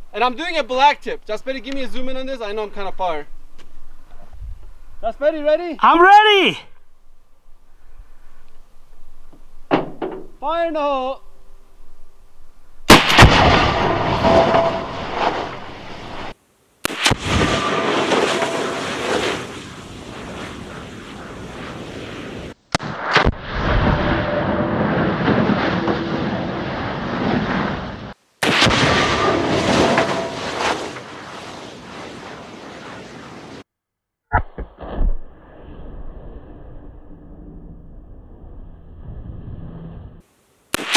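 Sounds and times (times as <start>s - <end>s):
rumbling explosion roar: 12.9s - 16.3s, 17.1s - 33.5s
rifle shot crack: 12.9s - 23.5s, 28.4s - 33.6s.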